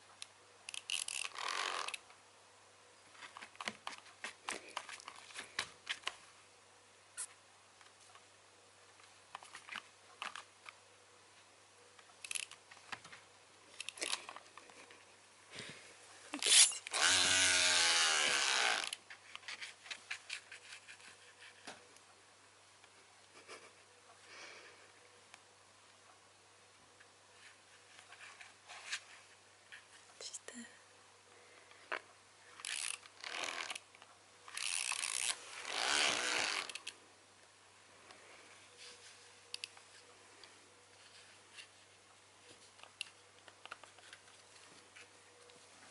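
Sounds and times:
wind-up toy whirring: 0.7s - 2.0s, 16.4s - 19.0s, 32.6s - 33.8s, 34.5s - 36.9s.

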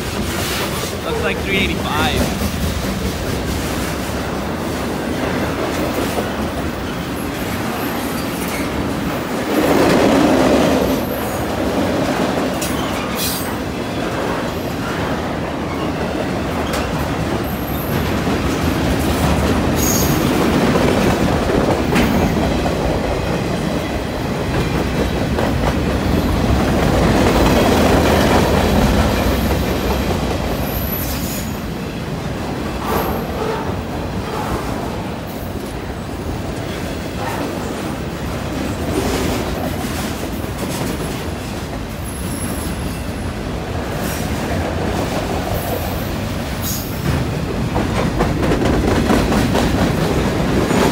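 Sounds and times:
freight train wheels rumbling: 0.0s - 50.9s.

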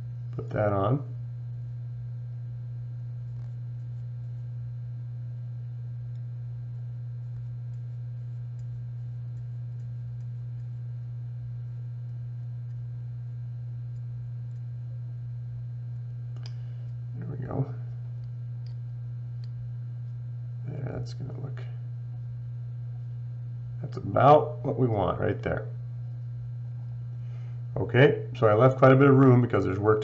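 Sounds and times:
steady low hum: 0.0s - 30.0s
faint clicks: 16.3s - 17.0s.

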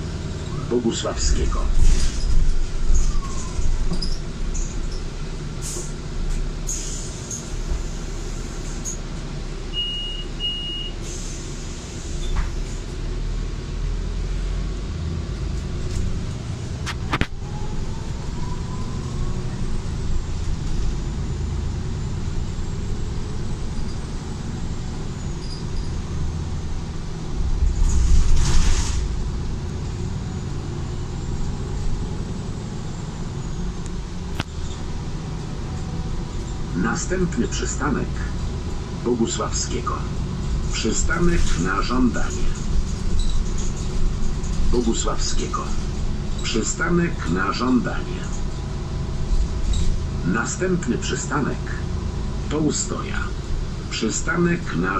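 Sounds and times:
bus engine and road rumble: 0.0s - 54.9s
rising whine of bus: 0.0s - 54.9s
short high beeps: 9.8s - 10.9s
air hiss burst: 27.8s - 29.1s.

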